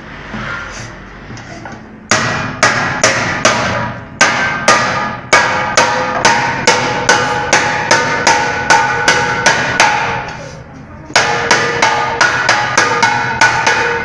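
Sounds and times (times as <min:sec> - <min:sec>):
mallet striking metal pot: 0:02.1 - 0:10.4, 0:11.1 - 0:14.0.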